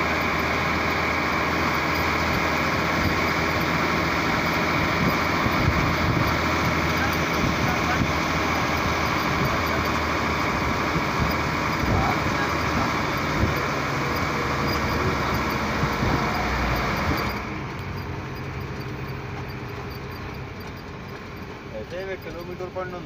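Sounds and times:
diesel truck engine running: 0.0s - 23.0s
wind and road rush: 0.0s - 23.0s.

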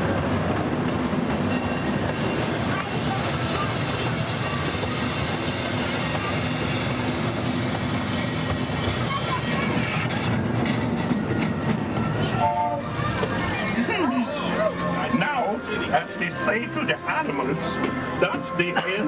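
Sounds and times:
wheels clattering on rails: 0.0s - 15.0s
small train rumbling: 0.0s - 19.0s.

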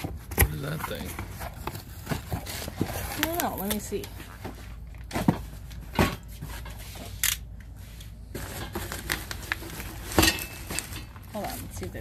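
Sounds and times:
cardboard and bubble wrap rustling: 0.0s - 12.0s.

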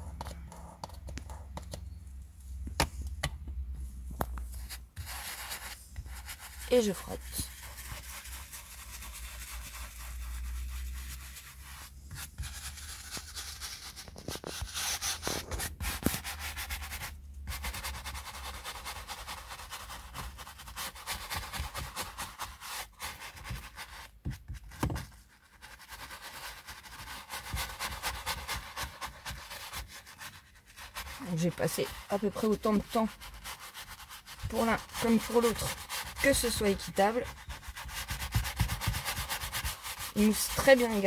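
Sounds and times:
brush scrubbing leather: 4.6s - 24.2s, 25.5s - 41.0s.

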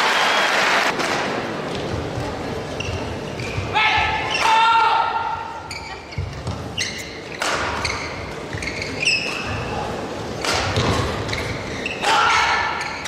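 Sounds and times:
murmur of arena crowd: 0.0s - 13.0s
shoes squeaking on court: 1.8s - 3.7s, 5.6s - 13.0s
rackets striking shuttlecock: 7.3s - 8.0s, 10.4s - 11.5s.

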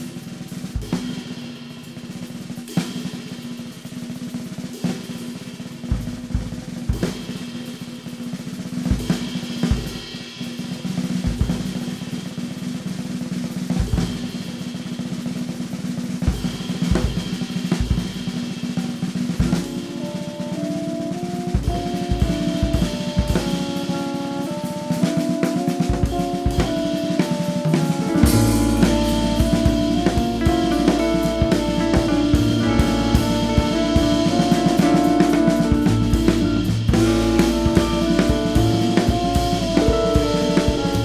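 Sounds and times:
jazz drum kit: 0.0s - 41.0s.

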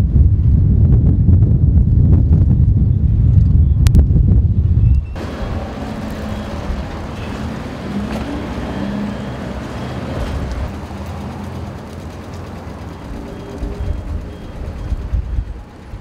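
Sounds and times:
tyre and road noise: 0.4s - 16.0s
car engines humming: 5.2s - 16.0s.

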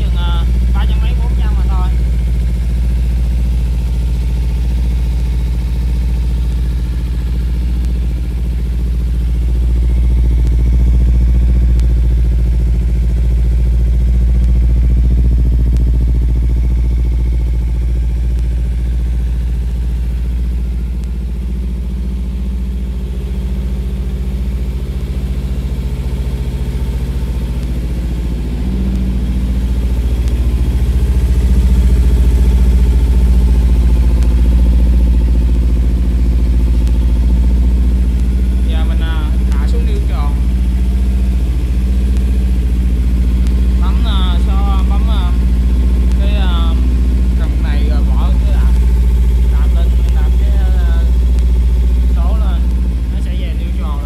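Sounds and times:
motorcycle engine idling: 0.0s - 54.0s.

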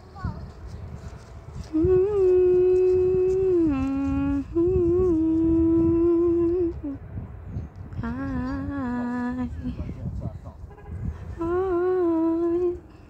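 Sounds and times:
person humming: 1.7s - 7.0s, 8.0s - 9.8s, 11.4s - 12.9s.

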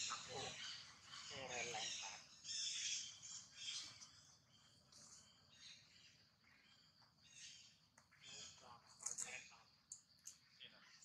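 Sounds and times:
high bird chirps: 0.0s - 4.7s.

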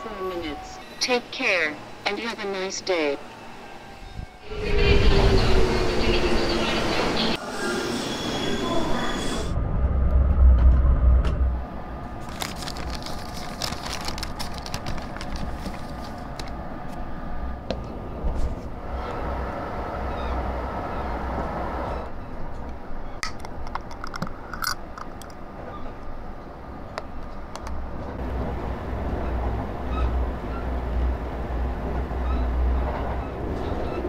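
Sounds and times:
train carriage rumble: 0.0s - 7.9s, 8.5s - 34.0s
station platform noise: 0.0s - 13.4s, 14.0s - 34.0s
paper bag rustling: 12.2s - 16.6s
metal screw lid clicking: 23.2s - 25.4s.

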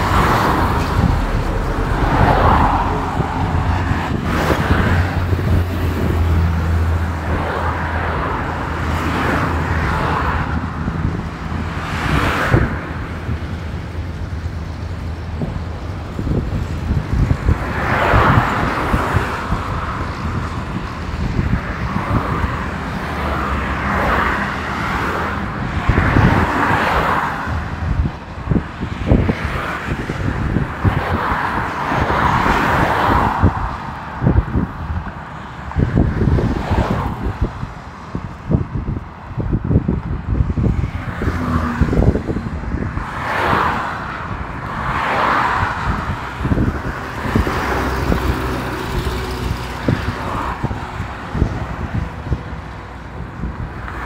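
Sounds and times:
vehicles hissing past: 0.0s - 25.7s
engine and tyre rumble: 0.0s - 54.0s.

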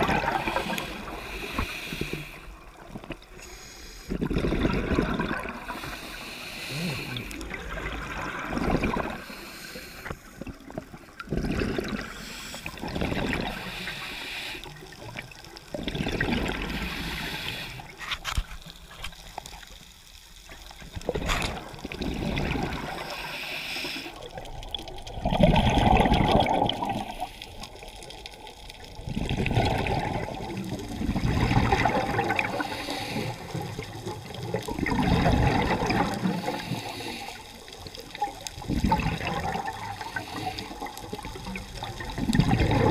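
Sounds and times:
gurgling exhaled bubbles: 0.0s - 3.4s, 4.1s - 13.9s, 14.7s - 18.0s, 20.6s - 23.4s, 24.0s - 42.9s
hissing regulator in-breaths: 0.2s - 2.6s, 3.4s - 4.2s, 5.6s - 7.6s, 9.0s - 10.6s, 12.0s - 15.1s, 16.6s - 18.0s, 22.9s - 24.3s, 32.4s - 34.0s, 36.2s - 38.1s, 39.9s - 41.1s.

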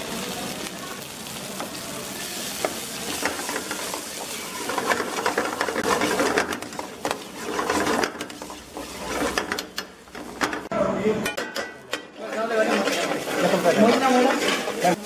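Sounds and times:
metal utensil scraping iron pan: 2.6s - 15.0s.

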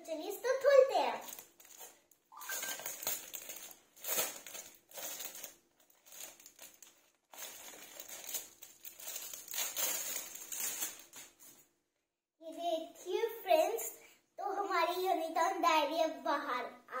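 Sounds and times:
plastic packaging crinkling: 1.2s - 11.5s.

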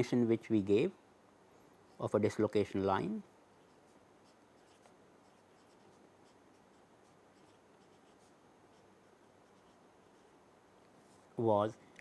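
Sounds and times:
marker scratching on paper: 3.5s - 10.4s.

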